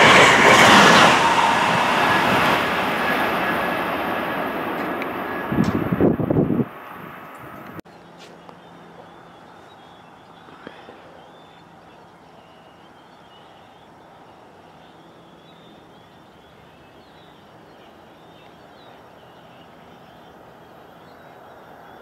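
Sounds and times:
distant rush: 0.0 - 7.8.

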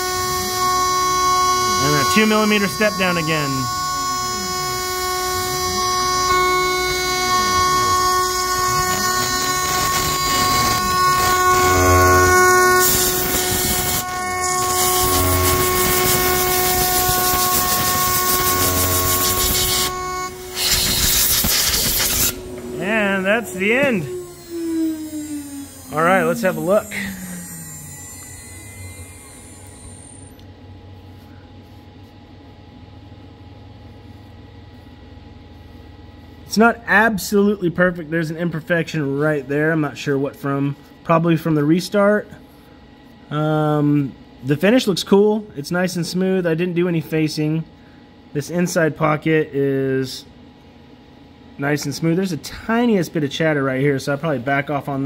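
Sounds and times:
router spindle whining: 0.0 - 30.5
low rising and falling machine tone: 0.0 - 31.0
high hiss: 7.6 - 30.4.

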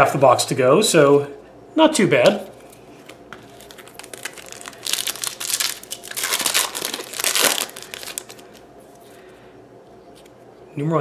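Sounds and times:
foil pack tearing and crinkling: 3.0 - 8.7.

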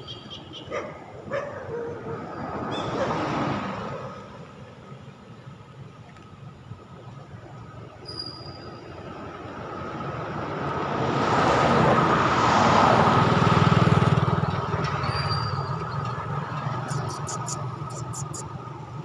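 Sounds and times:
vehicle passing by: 1.0 - 5.0, 8.9 - 19.0.

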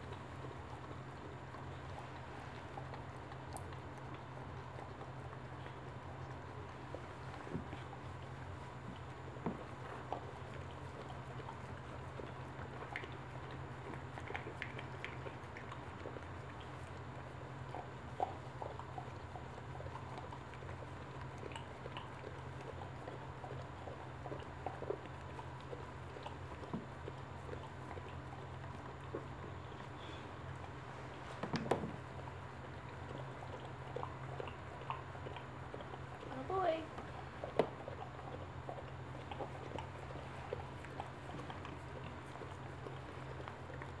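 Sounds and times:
dog licking puppy: 0.0 - 44.0
low steady hum: 0.0 - 44.0.

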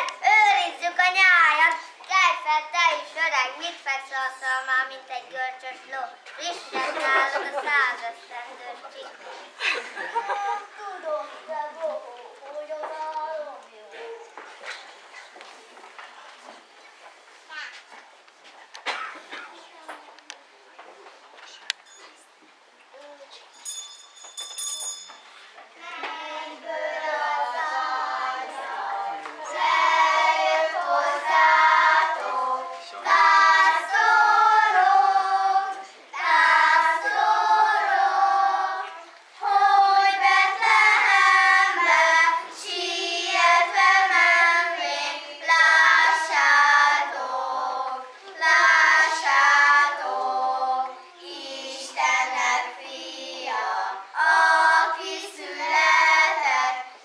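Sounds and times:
children singing: 25.8 - 57.0.

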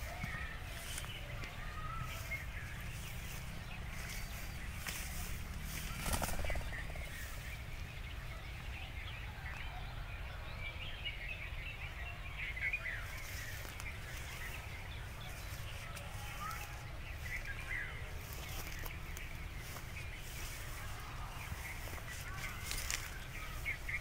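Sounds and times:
steady low rumble: 0.0 - 9.1.

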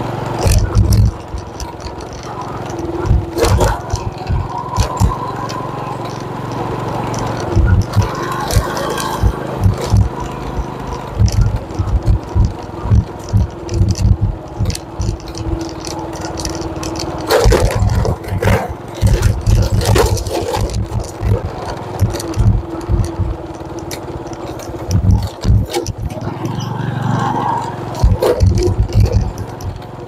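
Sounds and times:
motorcycle engine hum: 0.0 - 30.0
rattling clatter: 0.3 - 26.8, 27.7 - 30.0
wind thumps on microphone: 3.1 - 5.2, 7.6 - 8.6, 9.2 - 15.6, 17.3 - 23.4, 24.9 - 26.2, 28.0 - 29.8.

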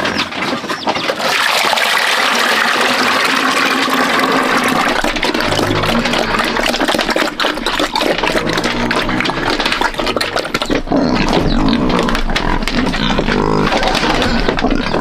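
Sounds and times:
pigs squealing and grunting: 0.0 - 15.0
knocks and clatters: 4.2 - 15.0.

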